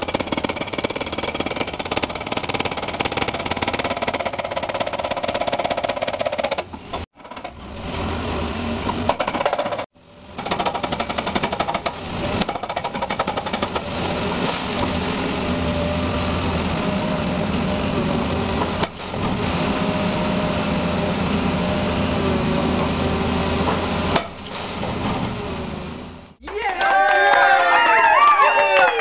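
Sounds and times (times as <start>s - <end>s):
machinery hammering: 0.0s - 15.2s
loud mechanical noise: 0.0s - 26.4s.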